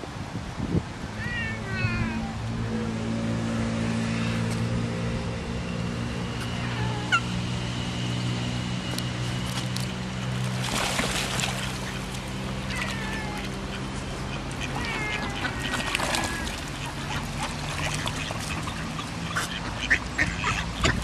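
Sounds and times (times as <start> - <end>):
water splashing: 9.3 - 21.0
ducks calling: 11.4 - 21.0.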